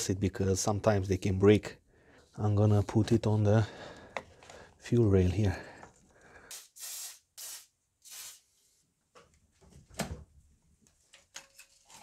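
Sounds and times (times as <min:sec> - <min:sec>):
aerosol spray hisses: 0:06.5 - 0:08.5.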